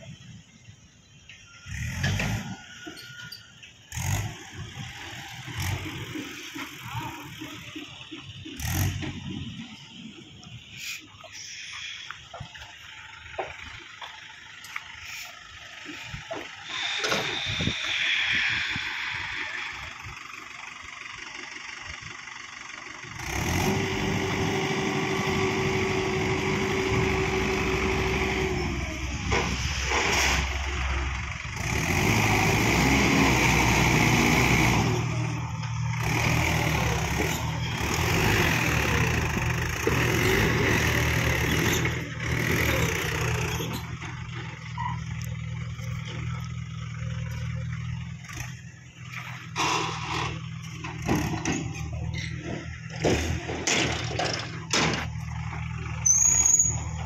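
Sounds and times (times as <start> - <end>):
hydraulics whine: 0.0 - 57.0
tractor diesel engine running: 0.0 - 57.0
soil rushing out of trailer: 23.2 - 46.4.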